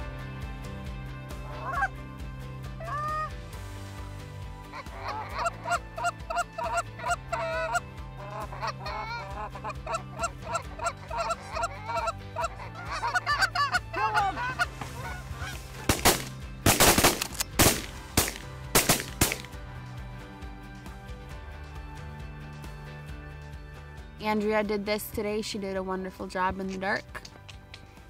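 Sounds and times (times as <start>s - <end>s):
goose honking and clucking: 1.4s - 1.9s, 2.8s - 3.3s, 4.7s - 16.1s
shotgun blasts: 15.9s - 19.6s.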